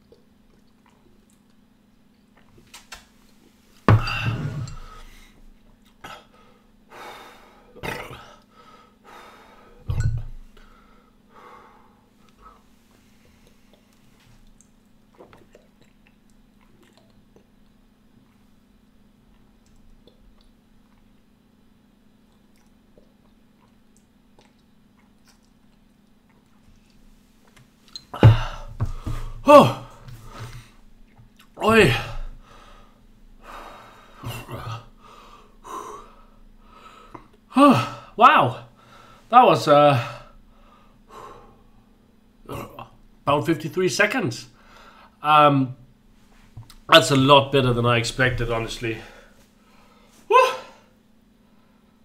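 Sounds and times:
man breathing hard: 6.1s - 7.8s, 8.4s - 9.8s, 10.6s - 12.6s, 32.3s - 38.0s, 40.5s - 41.9s
gulping and swallowing beer: 15.1s - 17.8s, 22.2s - 26.6s
man belching loudly: 29.4s - 30.0s, 42.4s - 43.0s.

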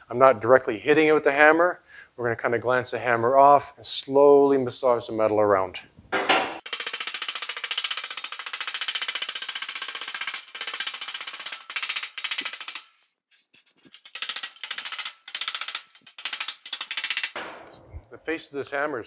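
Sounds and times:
hammer tapping sheet metal: 6.2s - 6.7s, 14.4s - 18.2s.

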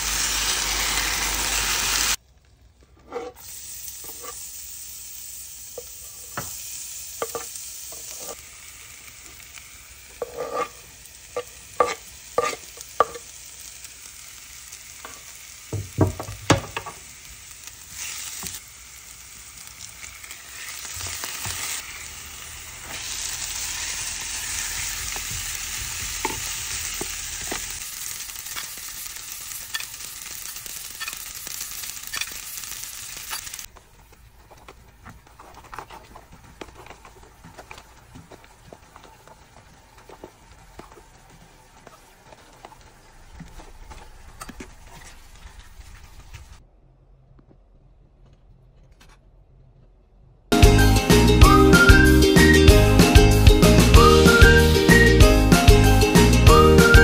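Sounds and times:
food sizzling in a pan: 0.0s - 2.2s, 3.1s - 34.7s, 35.5s - 46.5s.

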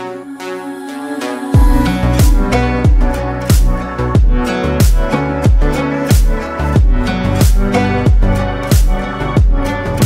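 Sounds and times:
electronic music: 0.0s - 10.0s
low kick drum: 1.6s - 9.7s.

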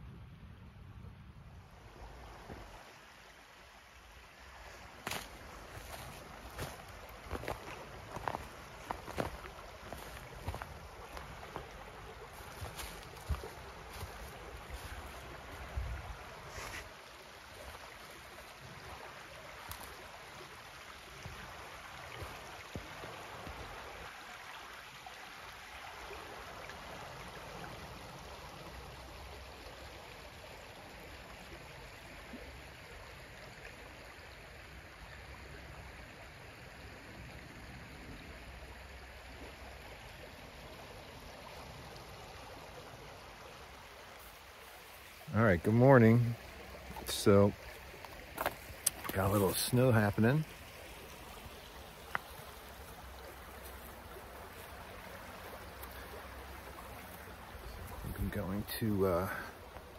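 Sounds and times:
creek water rushing: 1.3s - 59.9s.

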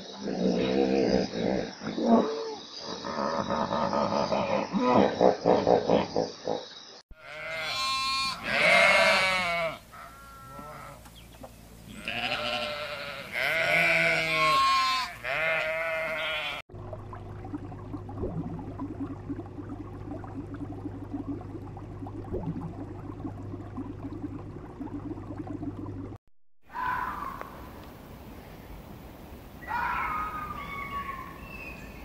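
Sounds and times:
sheep bleating: 7.2s - 11.0s, 11.9s - 16.6s.

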